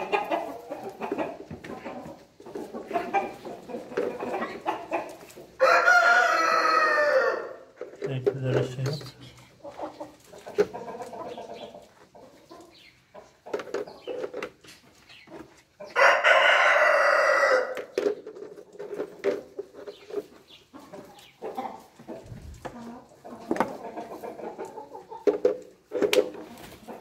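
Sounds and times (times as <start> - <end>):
hens clucking: 0.0 - 27.0
rooster crowing: 5.6 - 7.6, 16.0 - 17.7.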